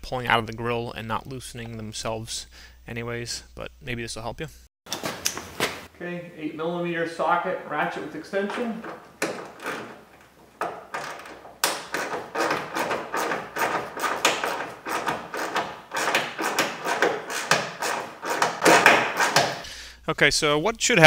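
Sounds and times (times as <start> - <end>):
ratchet clicking: 11.0 - 19.6.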